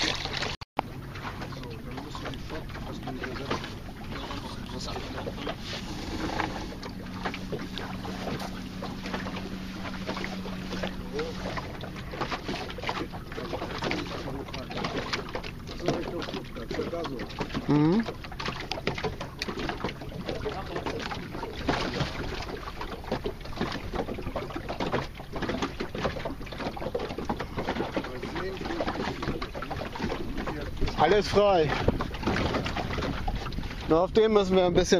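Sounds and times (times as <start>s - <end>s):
water splashing against wooden hull: 0.0s - 34.9s
wind on the microphone: 29.9s - 34.9s.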